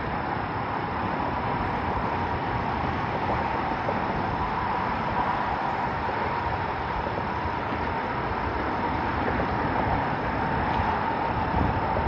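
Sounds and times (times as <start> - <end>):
faint steady whine: 0.0 - 12.0
steady rushing noise: 0.0 - 12.0.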